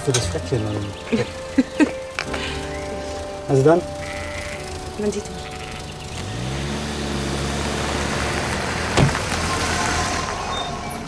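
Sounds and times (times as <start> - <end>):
car engine starting and running: 0.0 - 11.0
car door shutting: 6.2 - 9.7.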